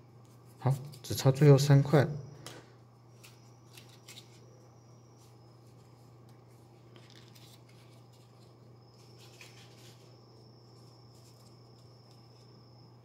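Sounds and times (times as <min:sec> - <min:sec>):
steady low hum: 0:00.0 - 0:13.0
paper rustling and clicking: 0:06.2 - 0:10.0.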